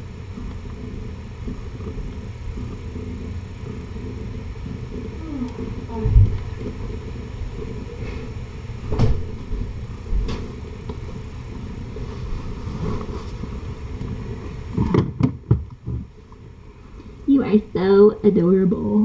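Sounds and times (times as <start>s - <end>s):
cat purring: 0.0s - 15.1s.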